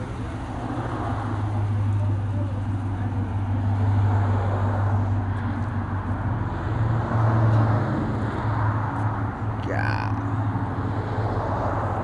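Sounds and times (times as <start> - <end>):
truck engine idling: 0.0 - 6.8.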